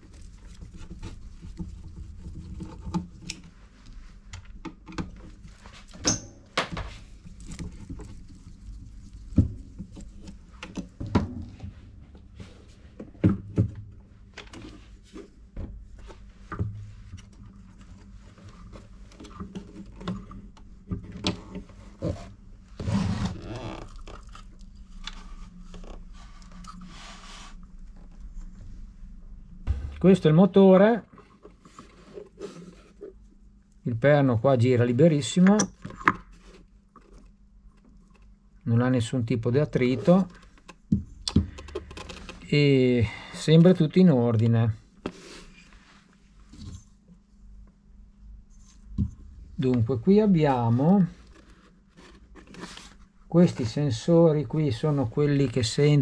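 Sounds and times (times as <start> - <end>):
knocks and scrapes of handling: 0.0 - 28.9, 31.1 - 33.2, 45.0 - 47.3, 48.5 - 54.1.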